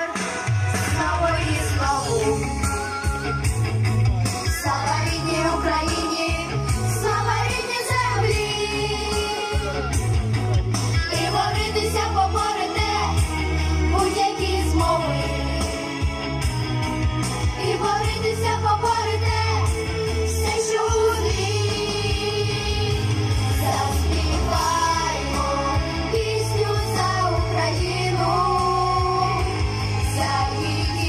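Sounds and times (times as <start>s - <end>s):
backing music with heavy bass: 0.0s - 31.0s
children singing into microphones: 4.6s - 9.7s, 11.2s - 13.3s, 17.6s - 31.0s.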